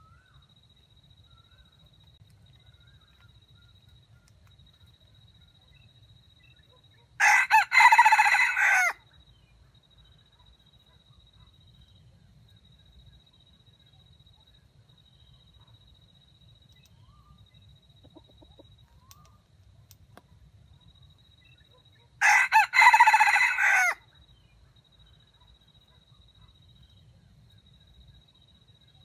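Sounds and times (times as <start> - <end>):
rooster crowing: 7.2 - 9.0, 22.2 - 24.0.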